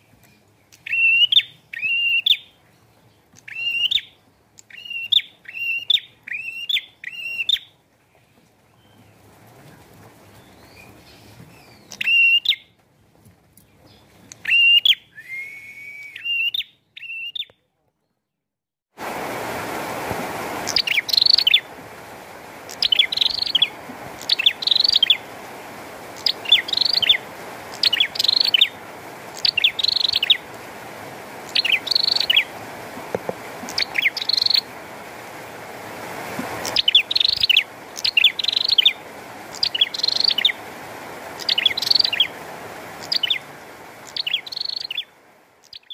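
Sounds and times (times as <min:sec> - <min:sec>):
rain hiss: 0:00.0 - 0:12.6, 0:18.9 - 0:45.9
bird chirps: 0:00.2 - 0:07.8, 0:10.4 - 0:12.7, 0:13.6 - 0:15.2, 0:16.1 - 0:18.2, 0:20.7 - 0:21.7, 0:22.7 - 0:25.2, 0:26.2 - 0:28.8, 0:29.4 - 0:30.4, 0:31.5 - 0:32.5, 0:33.7 - 0:34.7, 0:36.6 - 0:40.6, 0:41.4 - 0:42.3, 0:43.0 - 0:45.9
sharp repeated bird call: 0:20.7 - 0:21.7, 0:22.7 - 0:25.2, 0:26.2 - 0:27.2, 0:44.1 - 0:45.1.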